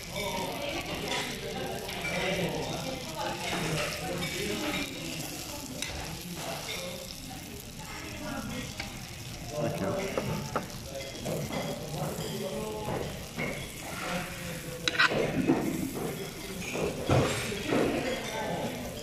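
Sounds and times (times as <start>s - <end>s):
meat sizzling on a hot plate: 0.0s - 19.0s
metal spoon scraping a plate: 13.5s - 18.3s.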